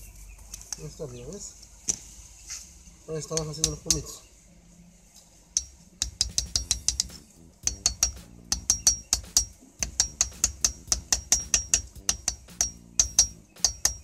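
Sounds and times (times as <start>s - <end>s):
small hammer tapping metal: 3.3s - 4.1s, 5.5s - 14.0s.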